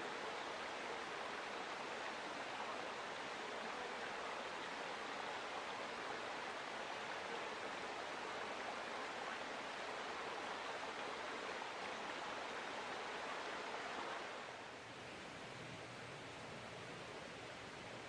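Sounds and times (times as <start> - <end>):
stream water rushing: 0.0 - 18.0.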